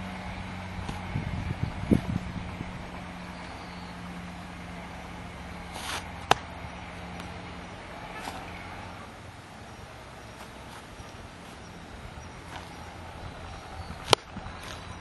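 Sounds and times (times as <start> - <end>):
steady low hum: 0.0 - 15.0
sharp smack: 5.8 - 6.5.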